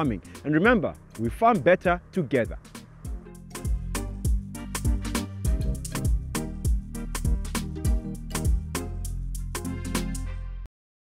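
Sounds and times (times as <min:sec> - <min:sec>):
steady bass note: 0:00.0 - 0:09.7
upbeat theme music: 0:00.0 - 0:10.7
pitch-dropping kick drum: 0:01.9 - 0:08.8.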